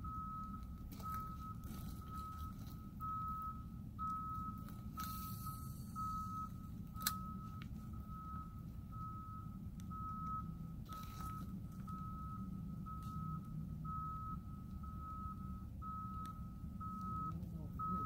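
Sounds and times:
low rumble: 0.0s - 18.0s
reversing alarm beeping: 0.0s - 18.0s.

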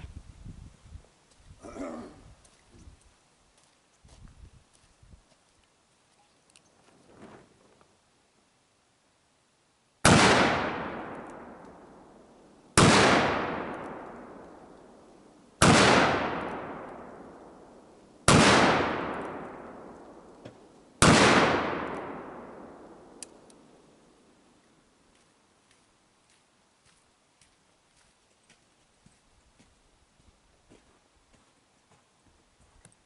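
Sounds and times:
revolver gunshots: 10.0s - 11.6s, 12.8s - 14.4s, 15.6s - 17.6s, 18.2s - 20.3s, 21.0s - 23.2s.

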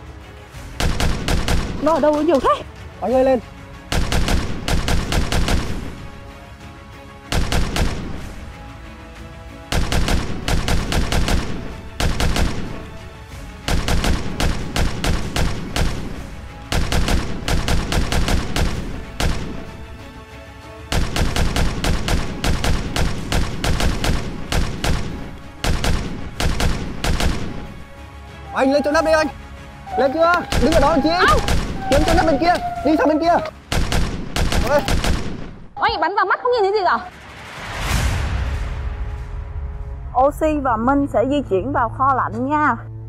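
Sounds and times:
background music: 0.0s - 43.0s
paintball guns firing: 0.8s - 2.4s, 3.9s - 6.0s, 7.3s - 8.3s, 9.7s - 13.0s, 13.6s - 19.8s, 20.9s - 27.7s, 30.5s - 32.8s, 33.7s - 35.7s.

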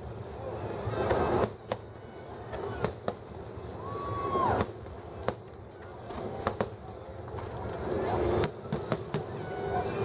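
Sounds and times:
fireworks bangs: 8.3s - 9.5s.

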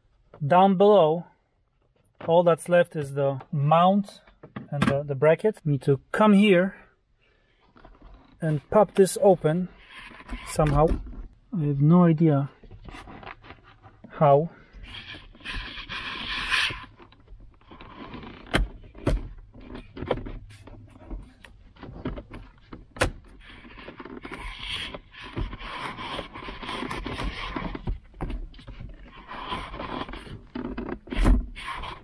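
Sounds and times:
plastic trim scraping: 7.7s - 11.4s, 12.6s - 32.0s.

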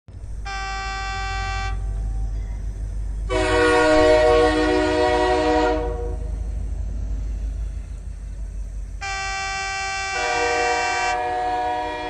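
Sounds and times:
low steady rumble: 0.1s - 9.4s
train horn blasts: 0.4s - 2.2s, 3.2s - 6.4s, 9.0s - 12.0s.

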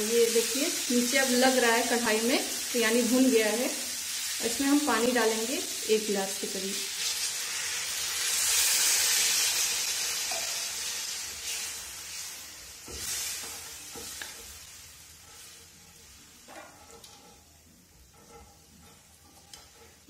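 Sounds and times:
water sizzling in hot pan: 0.0s - 20.0s
metal spatula scraping: 7.0s - 20.0s.

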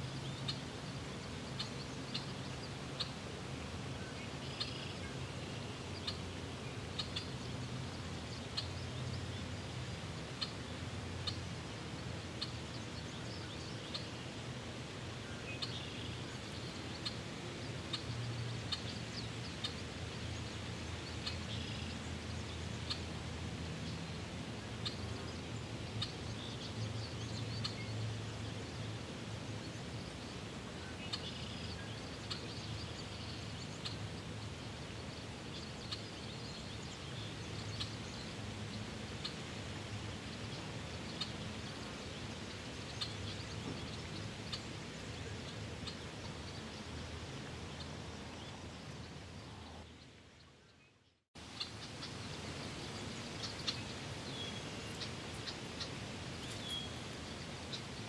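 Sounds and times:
steady low background noise: 0.0s - 58.0s
bird chirps: 53.4s - 57.4s.

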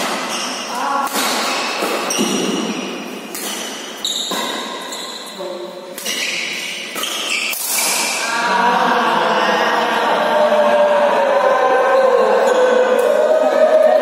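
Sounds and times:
rackets hitting shuttlecock: 0.0s - 5.3s, 5.9s - 8.3s.

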